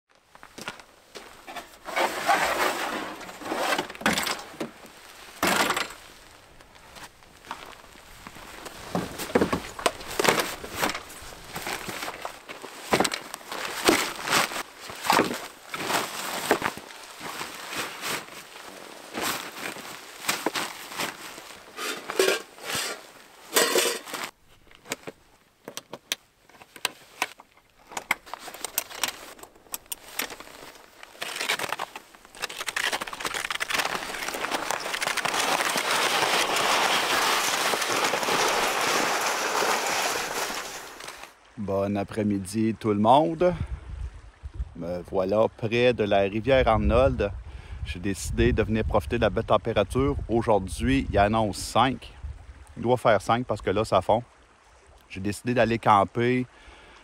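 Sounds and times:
nylon bags rustling: 0:00.4 - 0:25.2, 0:26.4 - 0:41.4.

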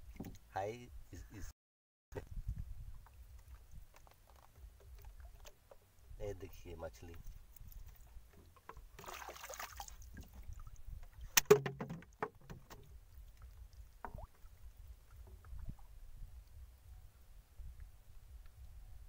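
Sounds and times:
splashy rustle: 0:09.0 - 0:14.5
knocks against wooden boat: 0:11.4 - 0:12.9.

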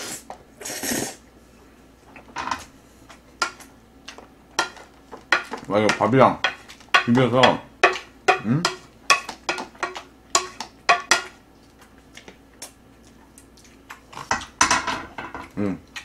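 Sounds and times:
tableware clatter: 0:14.3 - 0:15.6.

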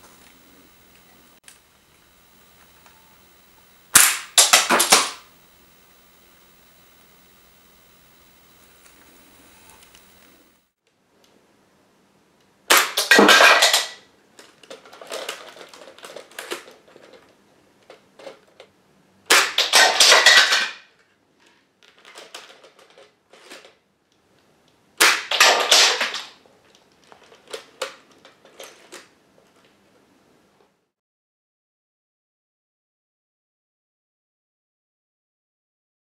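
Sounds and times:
plastic bricks tumbling on floor: 0:04.0 - 0:05.2, 0:12.8 - 0:18.7, 0:19.4 - 0:20.8, 0:21.4 - 0:23.8, 0:25.0 - 0:29.8
plastic toy gun snapping: 0:04.0 - 0:05.2, 0:12.7 - 0:14.0, 0:19.3 - 0:20.8, 0:25.0 - 0:26.4.

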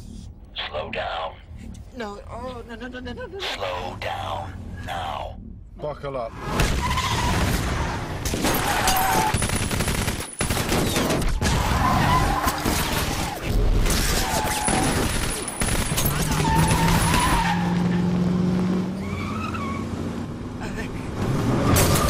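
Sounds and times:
automatic gunfire: 0:09.3 - 0:11.2
car engines: 0:11.5 - 0:22.0.

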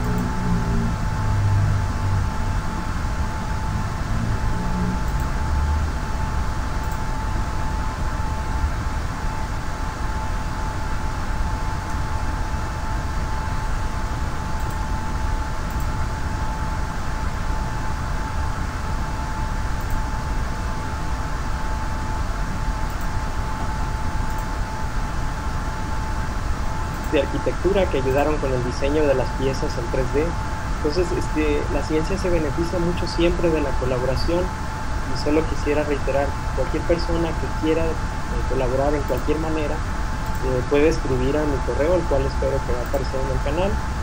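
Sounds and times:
low rumble: 0:00.0 - 0:09.0
constant high-pitched tone: 0:00.0 - 0:44.0
microphone hiss: 0:00.0 - 0:44.0.

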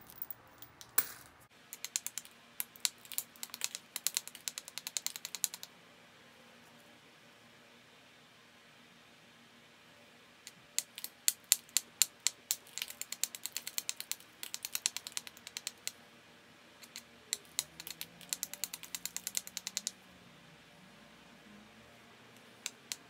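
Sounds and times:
stone-on-stone clicks: 0:00.0 - 0:05.7, 0:10.5 - 0:16.0, 0:16.8 - 0:20.0, 0:22.4 - 0:23.0.

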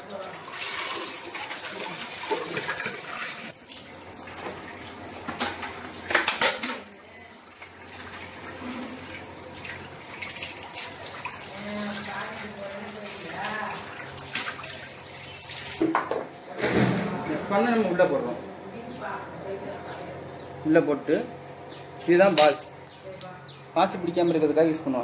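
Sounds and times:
tap water running into sink: 0:00.0 - 0:15.9.

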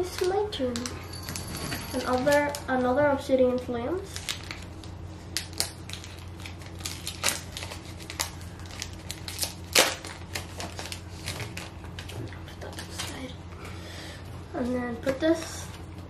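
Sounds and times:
foil pack tearing and crackling: 0:04.0 - 0:13.3.

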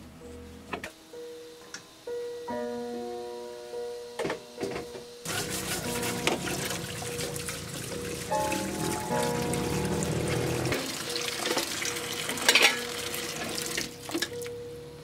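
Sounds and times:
running water splashing: 0:05.3 - 0:14.4
music with plucked notes: 0:05.3 - 0:15.0.

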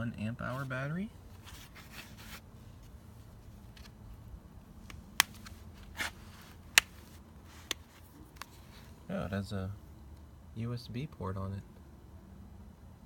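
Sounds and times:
plastic battery case handling: 0:04.8 - 0:08.6.

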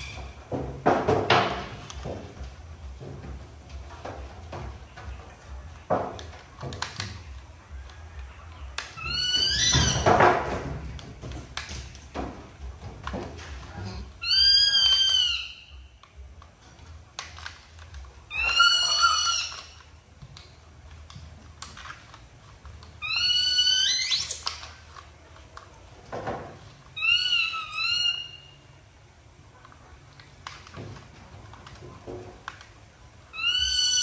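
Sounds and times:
baby monkey squealing: 0:09.0 - 0:10.1, 0:14.2 - 0:15.7, 0:18.3 - 0:19.8, 0:23.0 - 0:24.6, 0:27.0 - 0:28.6, 0:33.3 - 0:34.0.

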